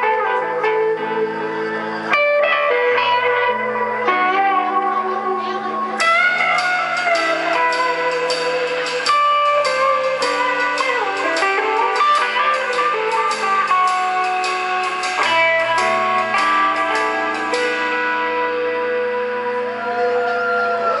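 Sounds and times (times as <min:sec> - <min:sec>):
blues-rock band playing: 0:00.0 - 0:21.0
electric guitar lead notes: 0:00.0 - 0:21.0
steady drum beat: 0:06.0 - 0:18.2.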